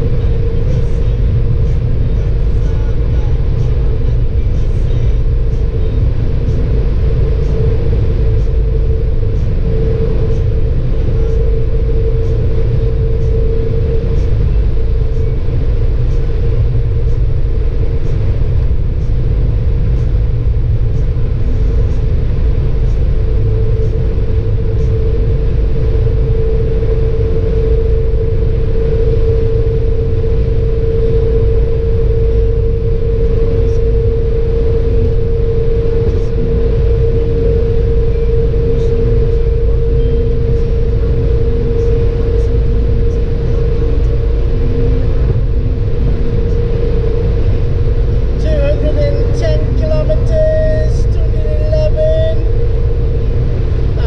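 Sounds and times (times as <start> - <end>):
constant steady hum: 0.0 - 54.0
low rumble of road and drivetrain: 0.0 - 54.0.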